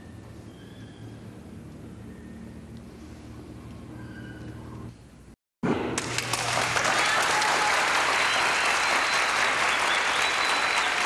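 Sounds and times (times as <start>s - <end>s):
crowd applauding: 6.0s - 11.0s.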